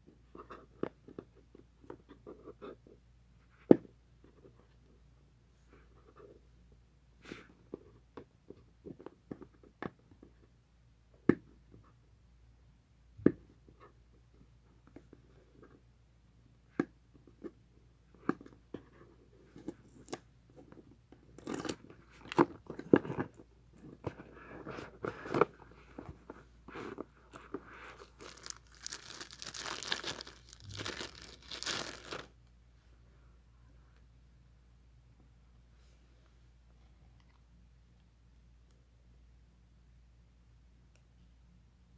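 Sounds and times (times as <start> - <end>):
cardboard and plastic rustling: 21.4 - 32.4.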